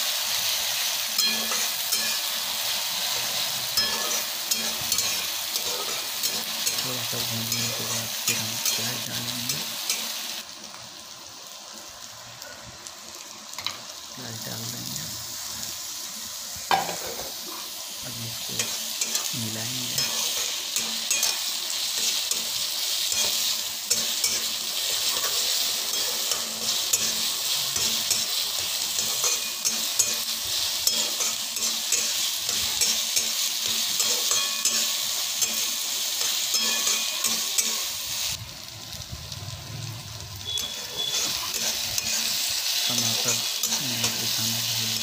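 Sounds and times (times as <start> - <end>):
food sizzling in hot oil: 0.0 - 45.0
spatula scraping pan: 1.2 - 9.1, 20.0 - 38.0, 40.4 - 45.0.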